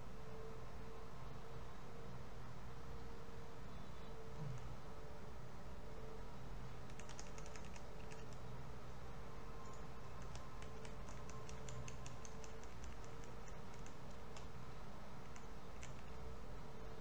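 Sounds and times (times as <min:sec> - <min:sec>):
steady hum: 0:00.0 - 0:17.0
mouse and keyboard clicks: 0:06.8 - 0:08.5, 0:09.6 - 0:14.6, 0:15.2 - 0:16.2.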